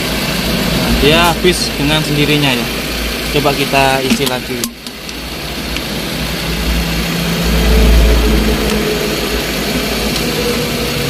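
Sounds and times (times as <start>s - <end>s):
car engine idling: 0.0s - 11.0s.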